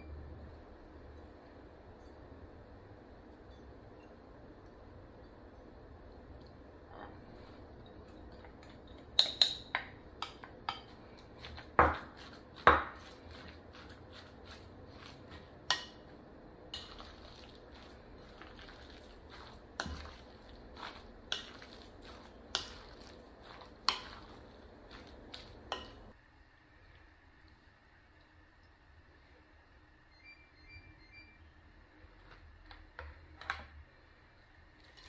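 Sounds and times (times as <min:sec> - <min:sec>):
wooden spoon stirring in glass bowl: 0:10.2 - 0:16.1, 0:16.7 - 0:26.2.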